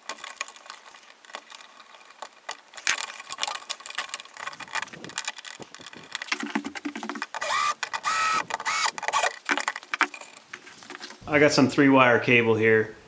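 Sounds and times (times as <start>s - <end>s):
metal strap rattling against box: 0.0s - 11.2s
screwdriver driving screws: 7.1s - 9.8s.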